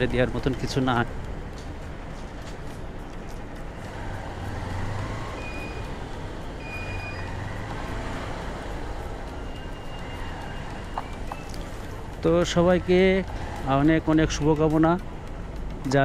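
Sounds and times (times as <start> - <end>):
street traffic: 0.0 - 16.0
vehicle engine humming: 0.0 - 16.0
faint high beeps: 5.3 - 6.0, 6.6 - 7.6, 9.2 - 11.7.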